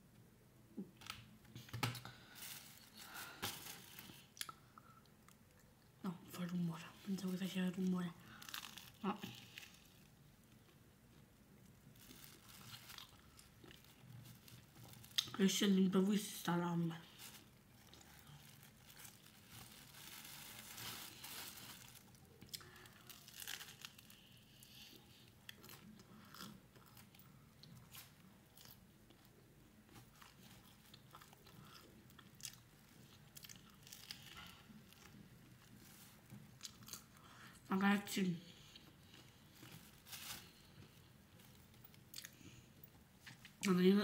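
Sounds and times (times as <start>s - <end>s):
person chewing a sandwich: 8.2s - 15.3s, 17.4s - 37.5s, 38.6s - 43.6s.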